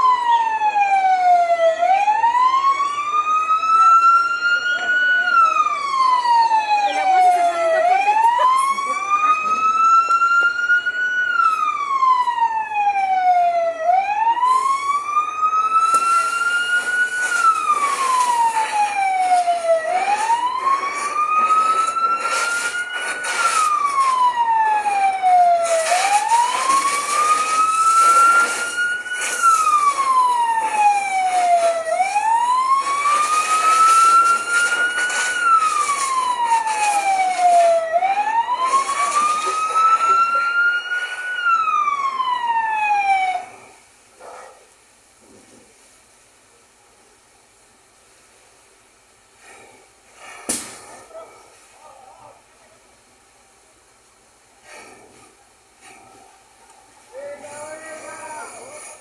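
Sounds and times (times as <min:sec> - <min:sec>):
emergency siren wailing: 0:00.0 - 0:43.8, 0:55.8 - 0:59.0
hiss and crackling: 0:14.5 - 0:59.0.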